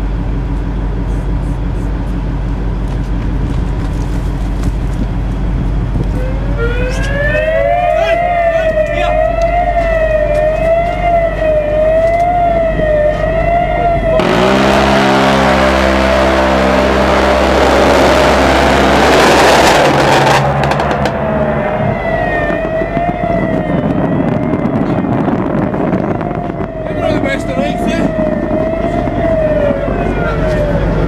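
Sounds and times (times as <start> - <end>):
steady low hum: 0.0 - 31.0
warbling warning siren: 5.8 - 31.0
loud rushing noise: 14.0 - 29.8.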